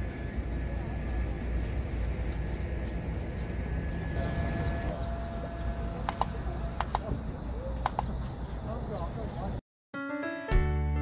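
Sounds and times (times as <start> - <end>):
sharp clicks: 6.0 - 7.1, 7.8 - 8.2.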